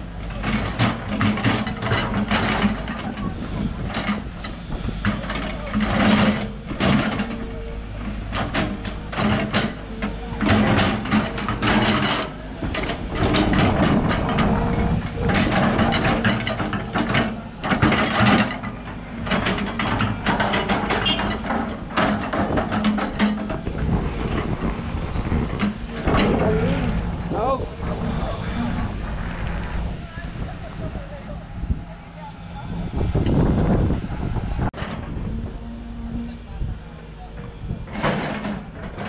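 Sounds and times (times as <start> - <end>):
diesel engine running: 0.0 - 39.0
metal knocks and clanks: 0.3 - 27.0, 37.4 - 39.0.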